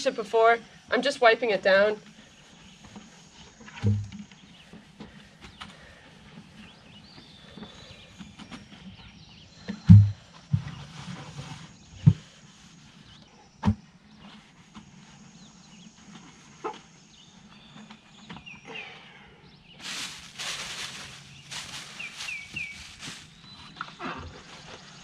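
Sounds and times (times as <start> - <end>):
plastic buckets knocking and thumping: 3.8 - 4.2, 9.9 - 10.2.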